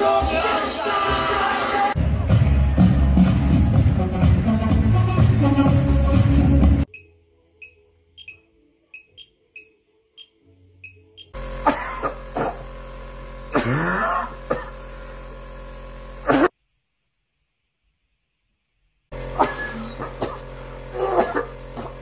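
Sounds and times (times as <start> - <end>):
pulse oximeter beeping: 6.9 - 11.4
nebulizer compressor humming: 11.2 - 16.5, 19.1 - 22.0
man coughing: 11.6 - 12.6, 13.5 - 14.8, 16.3 - 16.5, 19.4 - 22.0.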